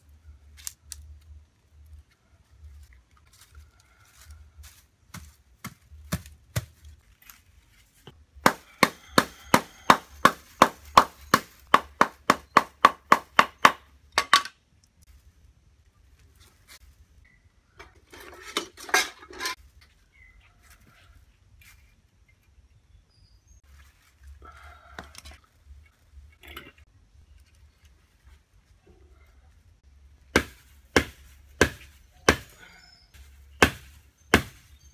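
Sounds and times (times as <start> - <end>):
tools rummaged in wooden toolbox: 17.8 - 19.6.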